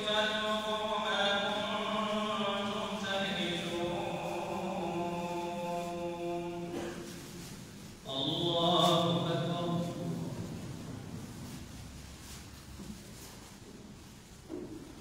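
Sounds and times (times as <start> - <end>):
man chanting melodic phrases: 0.0 - 7.4, 8.0 - 10.7.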